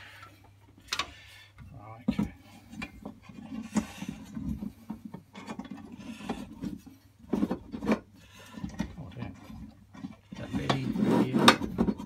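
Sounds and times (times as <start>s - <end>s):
metal scraping on metal: 3.1s - 12.0s.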